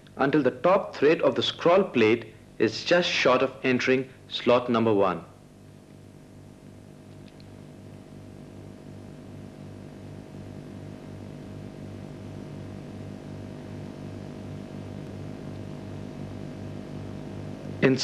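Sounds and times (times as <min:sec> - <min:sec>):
pulsing low hum: 0:07.6 - 0:18.0.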